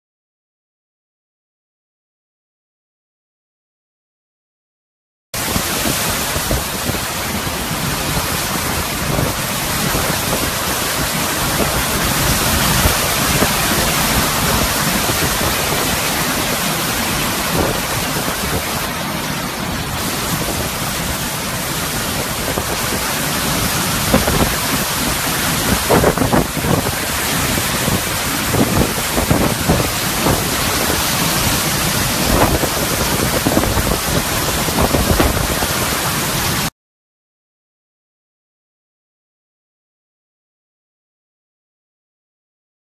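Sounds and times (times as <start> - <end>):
driving rain: 5.4 - 36.7
strong wind: 5.4 - 36.7
wind gusts buffeting microphone: 5.4 - 36.7.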